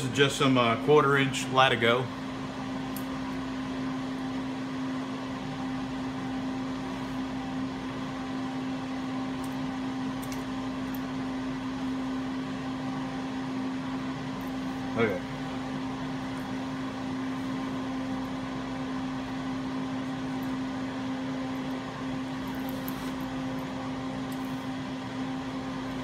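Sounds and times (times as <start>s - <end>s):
machine humming: 0.0s - 26.0s.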